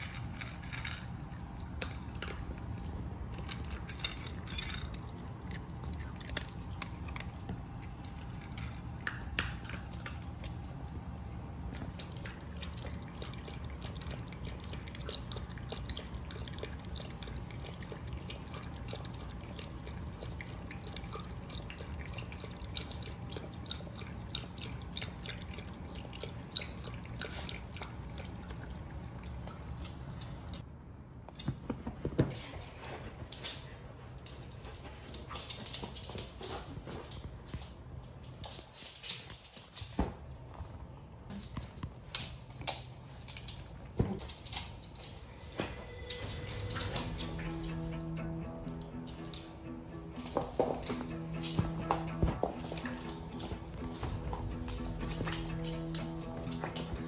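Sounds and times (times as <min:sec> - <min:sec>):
dog claws clicking on hard floor: 0:00.0 - 0:10.7, 0:31.4 - 0:40.2, 0:50.2 - 0:57.0
dog lapping water: 0:09.9 - 0:30.5.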